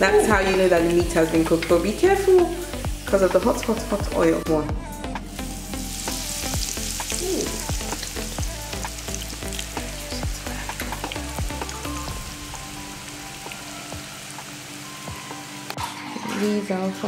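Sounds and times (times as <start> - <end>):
food deep-frying in hot oil: 5.3 - 16.2.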